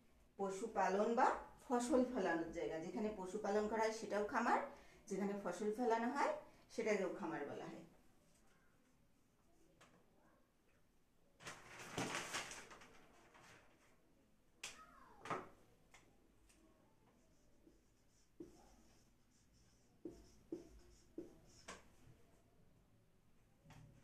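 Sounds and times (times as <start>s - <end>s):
marker squeaking on whiteboard: 17.3s - 22.0s.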